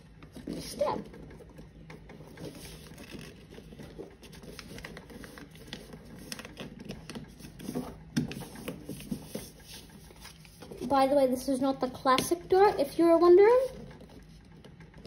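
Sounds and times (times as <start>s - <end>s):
paper rustling and crinkling: 1.7s - 11.1s
paper scraping and tapping on mat: 2.2s - 11.0s.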